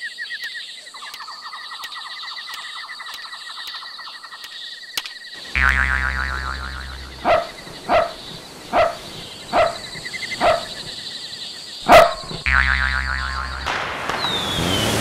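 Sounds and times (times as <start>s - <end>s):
deep steady bass tone: 5.6s - 7.3s, 12.4s - 13.7s
dog barking: 7.2s - 10.8s, 11.8s - 12.4s.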